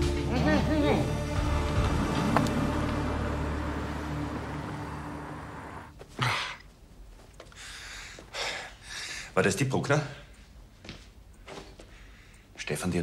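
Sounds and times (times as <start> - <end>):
car driving away: 1.0 - 5.9
quiet breathing: 7.4 - 9.4, 11.4 - 12.6.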